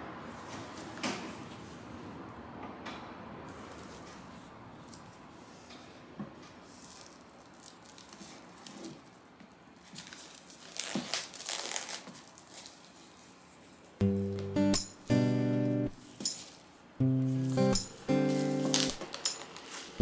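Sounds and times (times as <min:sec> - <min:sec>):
plastic film tearing and crinkling: 0:06.7 - 0:09.2, 0:09.8 - 0:13.3, 0:18.2 - 0:20.0.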